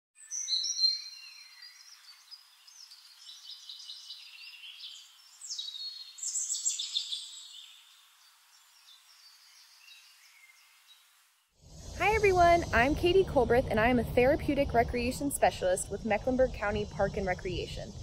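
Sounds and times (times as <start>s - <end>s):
birds chirping and singing: 0.2s - 11.1s.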